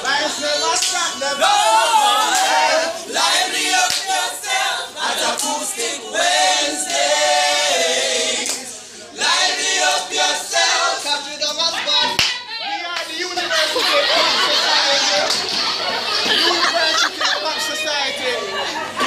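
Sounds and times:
group singing in harmony: 0.0 - 11.3.

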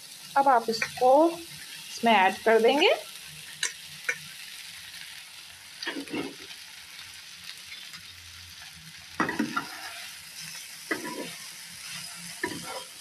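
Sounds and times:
faint sizzle in a pan: 0.0 - 13.0
spatula scraping a pan: 5.8 - 6.6, 9.2 - 13.0.

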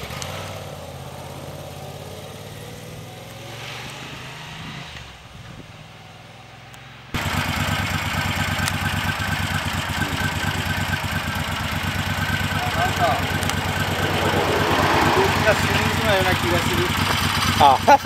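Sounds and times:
motorcycle pulling away: 0.0 - 6.6, 7.2 - 18.0
motorcycle engine idling: 7.2 - 18.0.

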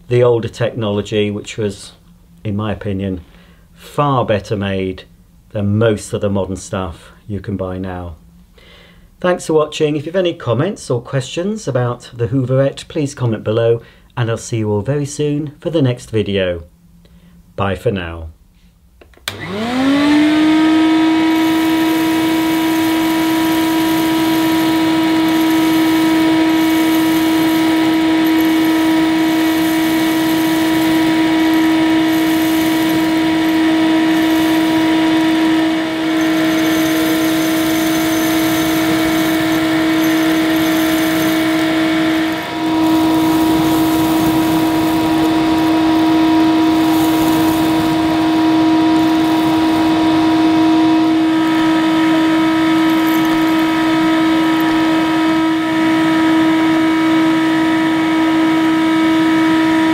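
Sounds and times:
vacuum cleaner running: 19.3 - 59.9.

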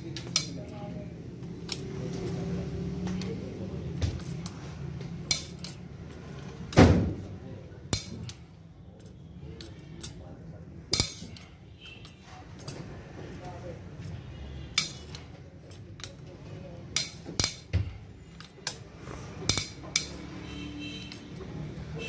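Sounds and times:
metal tools clinking and knocking: 0.0 - 4.6, 5.2 - 6.8, 7.9 - 10.3, 10.9 - 12.8, 14.7 - 21.5.

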